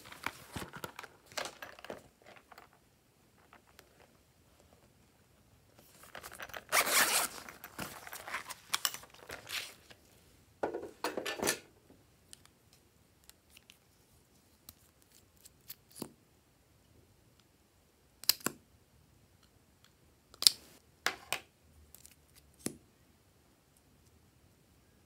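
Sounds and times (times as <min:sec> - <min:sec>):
zipper rasping open: 0:06.6 - 0:07.5.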